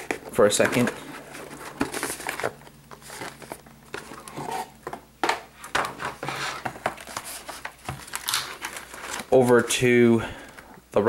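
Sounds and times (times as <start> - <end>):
cardboard box rustling and scraping: 6.0 - 9.3.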